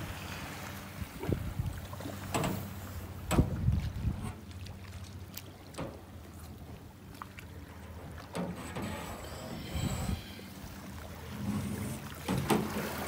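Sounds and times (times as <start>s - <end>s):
water slapping against boat hull: 0.9s - 8.9s, 10.9s - 13.0s.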